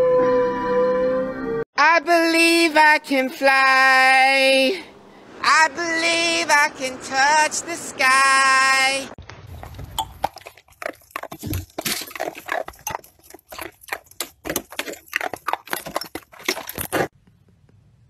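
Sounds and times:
dog gnawing and crunching: 9.5 - 17.1.

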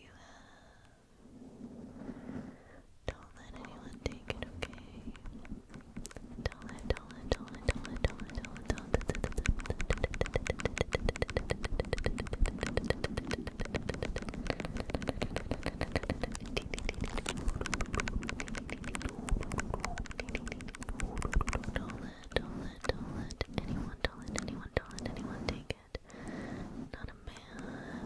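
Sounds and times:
scratching on microphone: 3.1 - 28.0.

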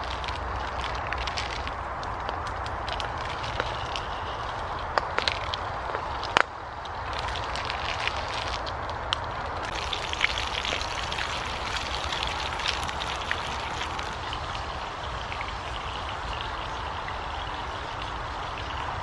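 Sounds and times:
burning wood popping: 0.0 - 14.2.

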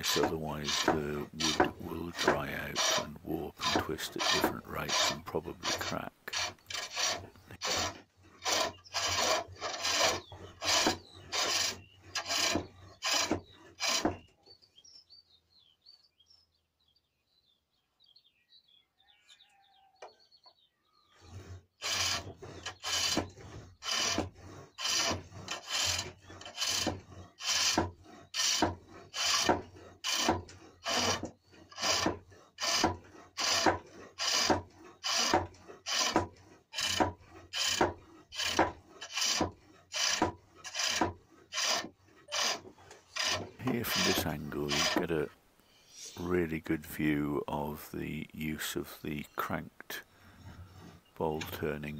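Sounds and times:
turning tool scraping wood: 0.0 - 14.4, 21.0 - 51.9.

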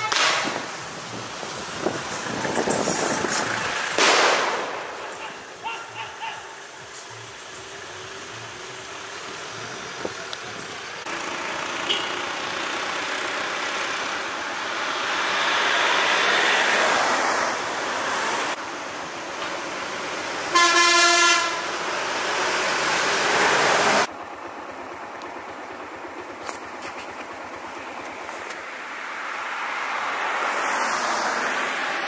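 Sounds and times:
vehicle horn: 0.0 - 0.4, 11.8 - 12.2, 20.5 - 21.8
road traffic passing: 0.0 - 32.0.

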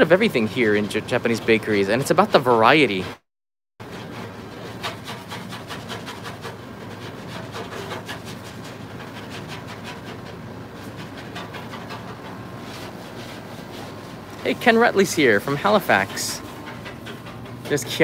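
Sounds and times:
machine hum: 3.8 - 18.0.

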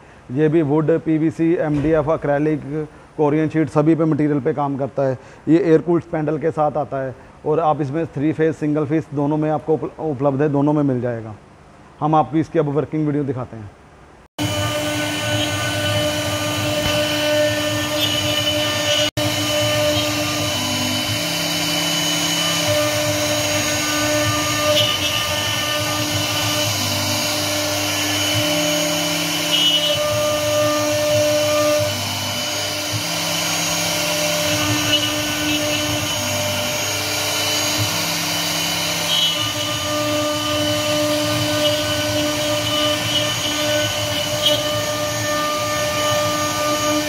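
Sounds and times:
cnc router spindle whine: 14.4 - 47.0.

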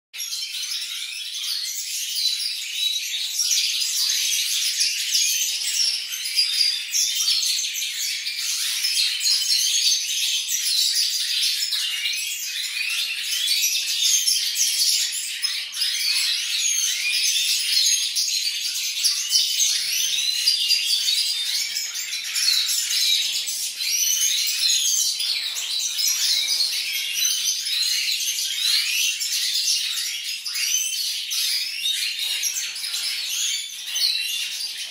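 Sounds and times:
finches twittering and chirping: 0.2 - 34.9.

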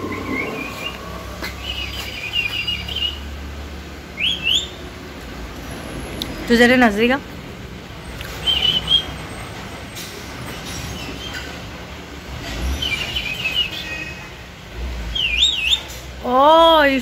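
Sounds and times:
parakeet chirping and whistling: 0.0 - 3.2.

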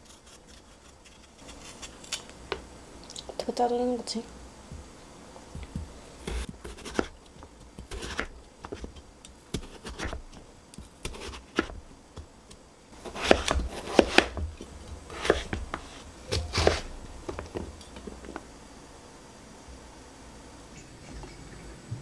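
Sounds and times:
knife slicing on cutting board: 5.6 - 7.2, 7.9 - 8.9, 9.5 - 10.4, 11.0 - 11.8, 13.0 - 14.4, 15.1 - 17.5.

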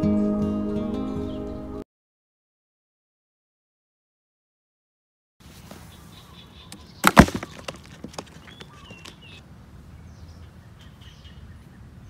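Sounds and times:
cardboard trap clattering shut: 7.0 - 8.3.

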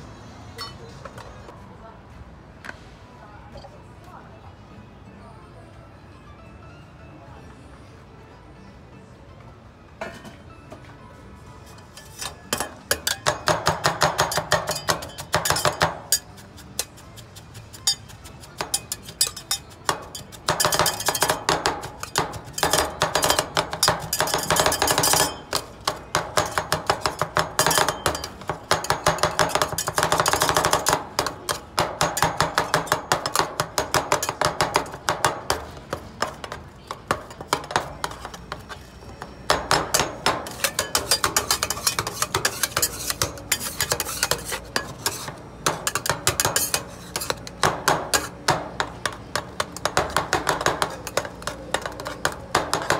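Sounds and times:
metal spatulas chopping on steel plate: 11.9 - 52.9.

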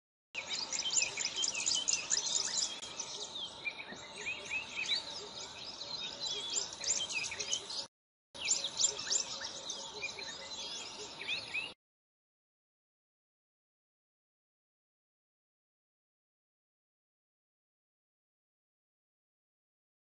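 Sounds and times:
small birds chirping: 0.4 - 11.8.

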